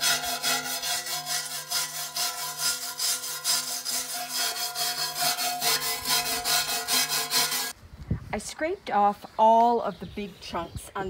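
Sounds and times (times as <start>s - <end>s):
wire brush scraping rust: 0.0s - 7.8s.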